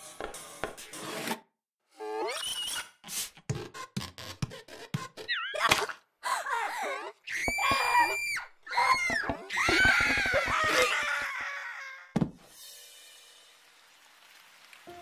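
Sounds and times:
high-pitched screams: 0:07.2 - 0:12.1.

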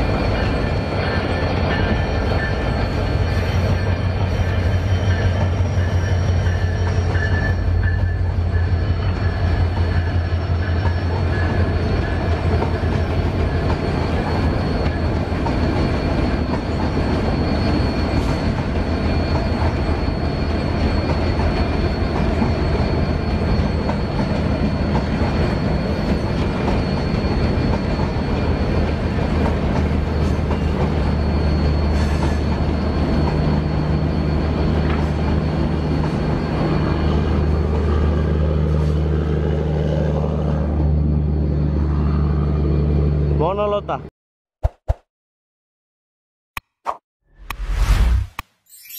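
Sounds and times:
train rolling on rails: 0:00.0 - 0:43.4
thin high whine: 0:47.6 - 0:48.9.

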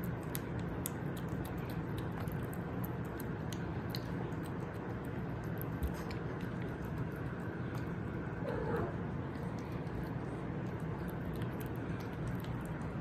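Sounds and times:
kitten chewing wet food: 0:00.0 - 0:13.0
steady low hum: 0:00.0 - 0:13.0.

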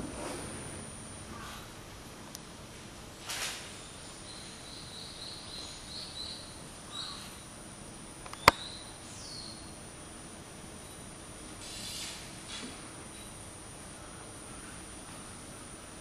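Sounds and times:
small bird chirping: 0:03.8 - 0:07.4, 0:08.3 - 0:09.7.

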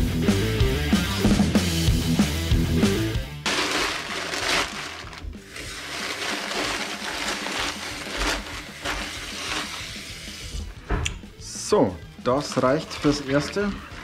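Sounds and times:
wet newspaper sloshing and crinkling: 0:03.5 - 0:10.0.

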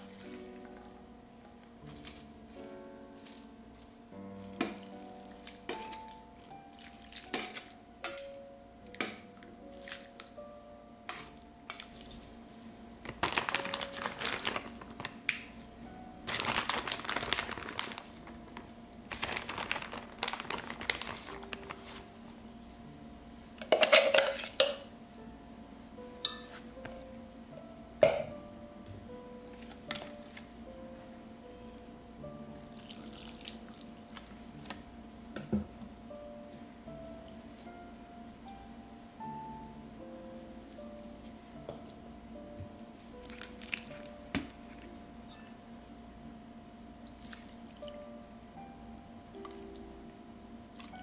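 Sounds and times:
light background music: 0:00.0 - 0:51.0
dishes and utensils clinking: 0:01.8 - 0:04.9, 0:05.6 - 0:06.3, 0:07.2 - 0:08.3, 0:11.1 - 0:12.0, 0:23.6 - 0:24.8, 0:26.2 - 0:26.6.

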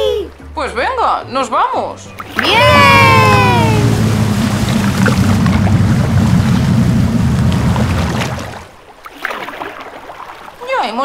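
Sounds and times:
water: 0:00.0 - 0:11.0
motorboat engine rumble: 0:02.1 - 0:09.1
wind noise: 0:02.4 - 0:08.8.

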